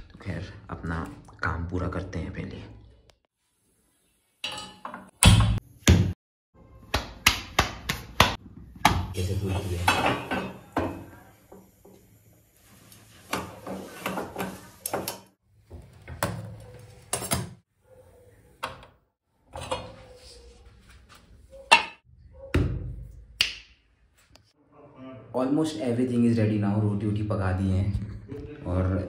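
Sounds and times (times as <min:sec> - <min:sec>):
metal utensils clicking and knocking: 0:04.4 - 0:05.1.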